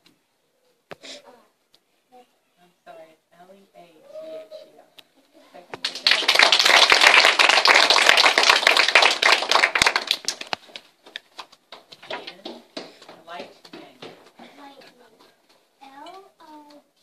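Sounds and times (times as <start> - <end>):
audience clapping: 5.8 - 13.0.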